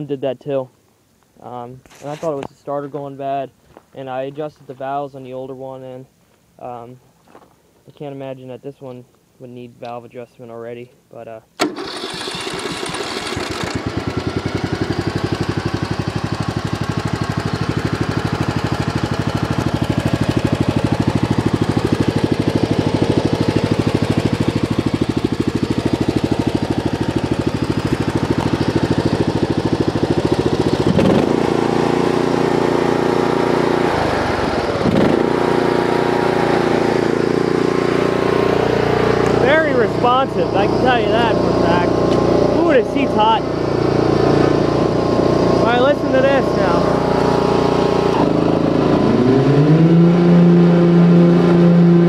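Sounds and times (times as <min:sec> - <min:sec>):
mower engine running: 0:11.6 - 0:52.0.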